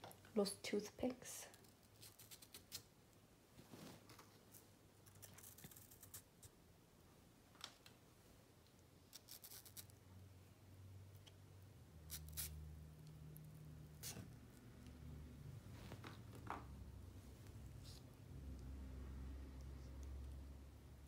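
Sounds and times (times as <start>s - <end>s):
small clicks and scratches: 1.5s - 2.9s, 3.9s - 6.6s, 8.6s - 10.0s
faint low hum: 3.0s - 21.0s.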